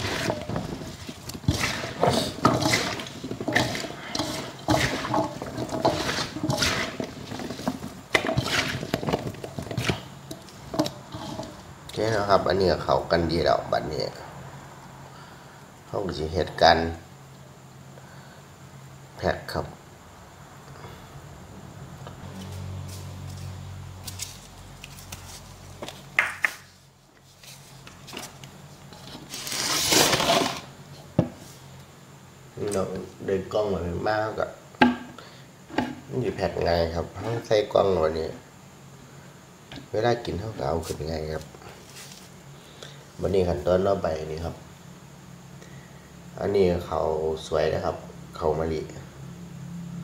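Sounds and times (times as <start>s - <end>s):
bamboo shoots rustling in bowl: 0.0s - 12.5s, 22.3s - 30.8s, 40.6s - 42.4s.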